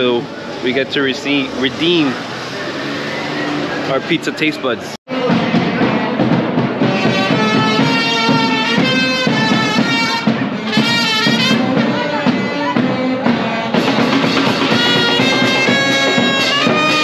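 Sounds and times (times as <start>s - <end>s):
instrumental music: 5.1s - 17.0s.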